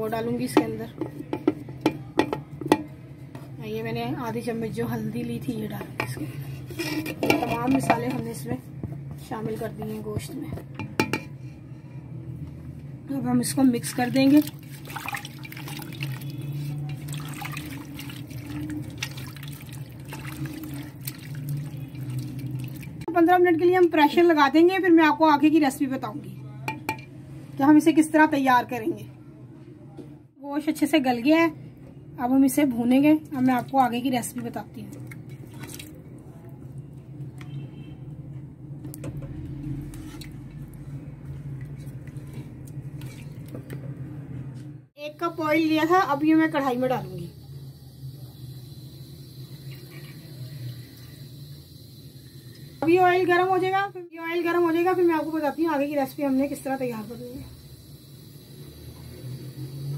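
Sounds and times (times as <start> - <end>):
liquid squishing: 14.0 - 23.0, 33.4 - 36.9, 39.7 - 43.8
spoon stirring wet food: 33.4 - 37.5.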